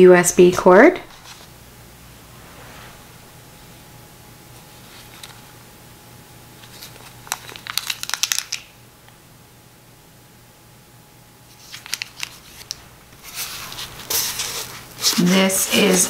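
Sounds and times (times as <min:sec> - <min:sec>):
plastic packaging crinkling: 0:06.6 - 0:08.8, 0:11.5 - 0:16.0.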